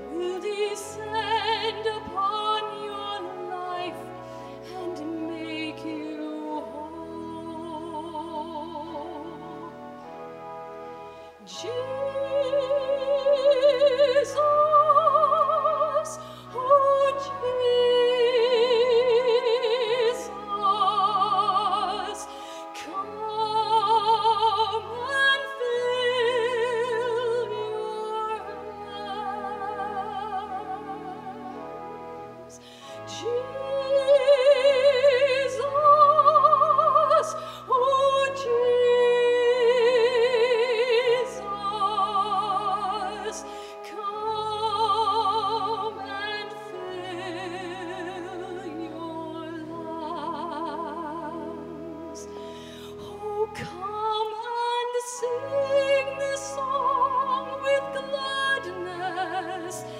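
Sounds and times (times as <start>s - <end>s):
operatic singing: 0.0s - 9.9s, 11.3s - 31.8s, 32.4s - 59.9s
instrumental accompaniment: 0.0s - 59.9s.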